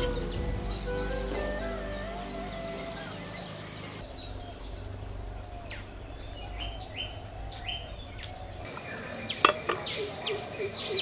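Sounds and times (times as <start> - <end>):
falling whistled notes: 0.0 - 4.4
birds chirping and whistling: 0.0 - 8.7.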